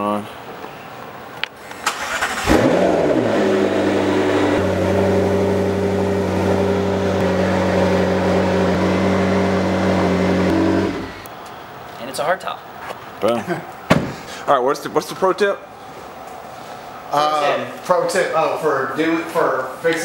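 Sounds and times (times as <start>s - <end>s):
car engine starting and idling: 1.8s - 11.3s.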